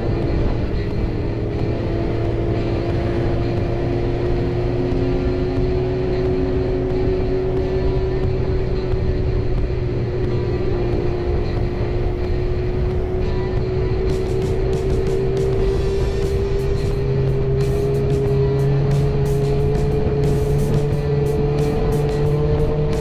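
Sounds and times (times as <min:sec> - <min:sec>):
motorcycle engine cruising: 0:00.0 - 0:23.0
wind and road rumble: 0:00.0 - 0:23.0.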